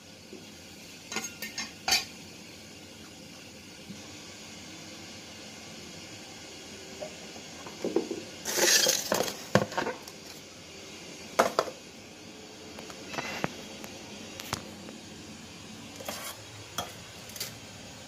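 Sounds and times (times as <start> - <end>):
knocks and clatters in colander: 7.7 - 10.0.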